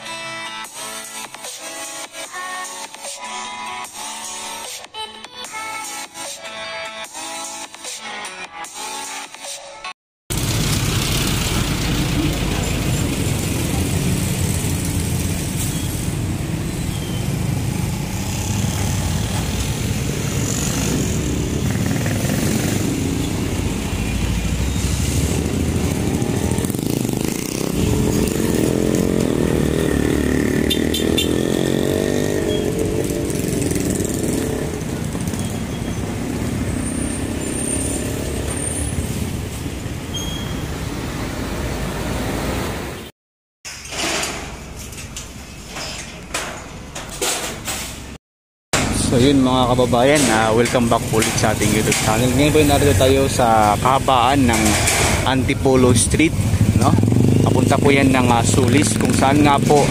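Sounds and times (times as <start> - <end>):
motorcycle engines passing: 10.3 - 42.9, 48.8 - 59.9
trucks running: 10.3 - 43.1, 48.8 - 59.9.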